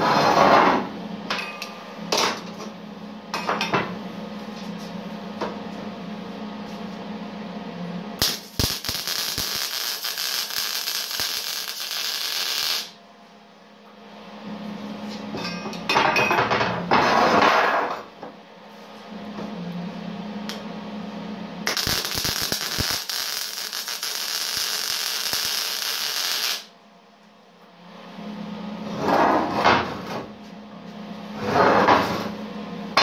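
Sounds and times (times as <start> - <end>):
welding arc crackling and hissing: 8.2 - 13.0, 21.7 - 26.7.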